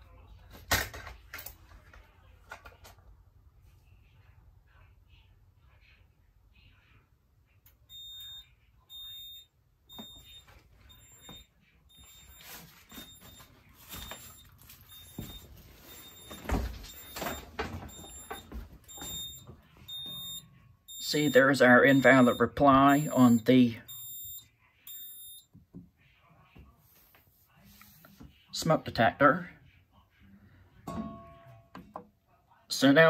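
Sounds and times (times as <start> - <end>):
alarm panel beeping: 7.9 - 25.4.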